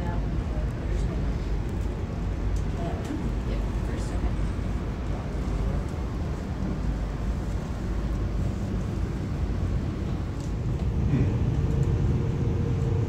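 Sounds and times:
faint steady hum: 0.0s - 13.0s
train rumble inside rail car: 0.0s - 13.0s.

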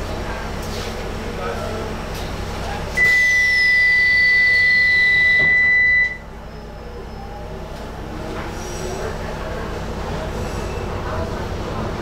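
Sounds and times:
high-pitched door warning beep: 3.0s - 6.3s.

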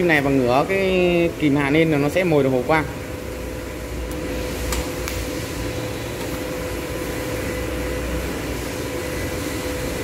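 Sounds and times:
welder hum: 0.0s - 10.0s
welding arc hissing: 3.4s - 10.0s.

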